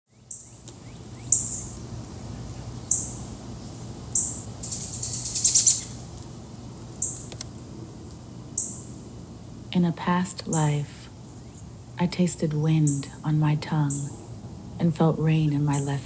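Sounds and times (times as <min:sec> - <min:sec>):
low steady hum: 0:00.1 - 0:16.0.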